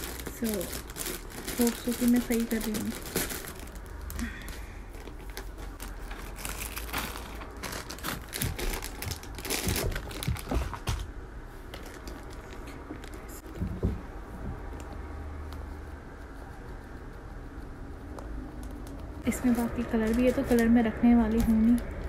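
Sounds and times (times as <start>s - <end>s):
plastic packets crinkling: 0.0s - 11.1s, 11.7s - 13.3s, 18.8s - 22.0s.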